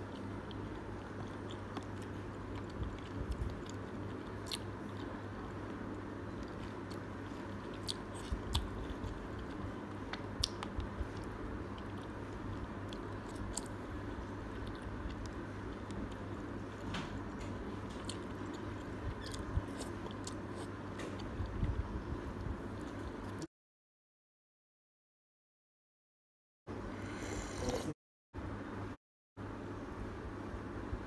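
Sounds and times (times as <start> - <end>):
chewing noodles: 0.0 - 5.3, 5.9 - 16.5
steady low hum: 0.0 - 23.5, 26.7 - 31.0.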